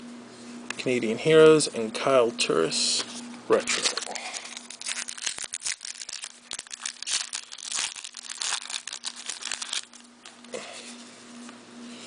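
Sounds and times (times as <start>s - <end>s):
wrappers crinkling by hand: 3.6s - 10.3s.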